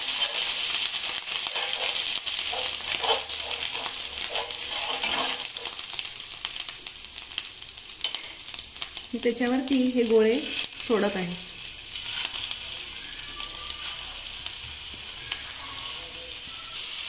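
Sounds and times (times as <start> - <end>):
spatula scraping a pan: 0.0 - 5.9, 11.9 - 14.6
paste sizzling in hot oil: 0.0 - 17.0.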